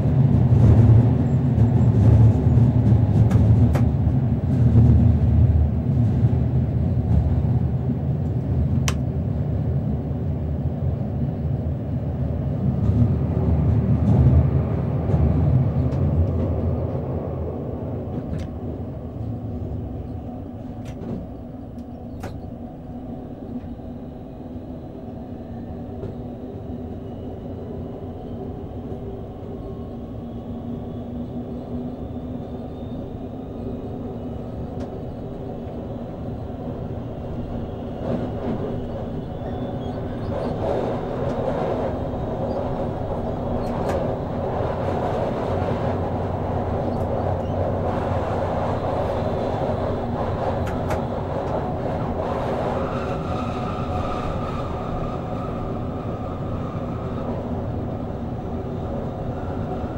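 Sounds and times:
electric train traction hum: 0:00.0 - 0:59.9
sharp clicks from track: 0:03.2 - 0:03.9, 0:08.2 - 0:09.0, 0:20.8 - 0:22.5, 0:43.6 - 0:44.1, 0:50.6 - 0:51.6
wheel and rail noise: 0:12.4 - 0:59.9.

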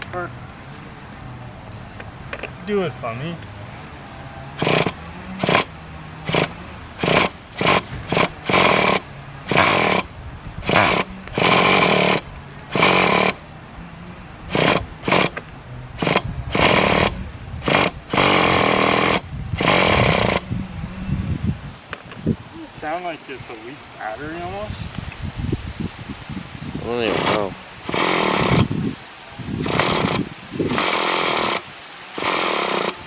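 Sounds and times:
electric starter cranking engine: 0:04.6 - 0:13.4, 0:14.5 - 0:15.4, 0:16.0 - 0:20.5, 0:27.0 - 0:28.7, 0:29.6 - 0:33.0.

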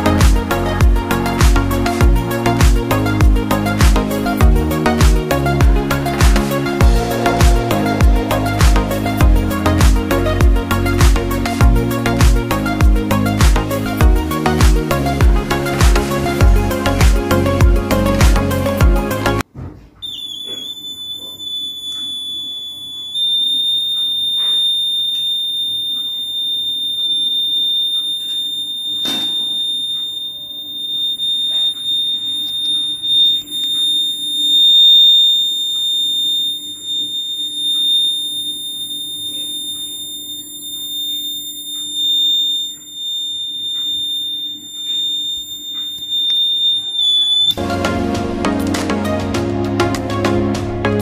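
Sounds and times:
knock: 0:19.5 - 0:19.9
high-pitched buzzer tone: 0:20.0 - 0:47.6.

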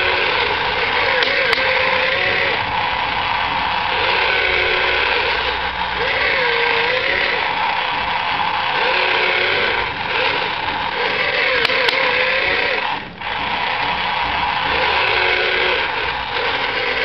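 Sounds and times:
electric motors whirring: 0:00.0 - 0:17.0
sharp clicks: 0:00.2 - 0:02.2.

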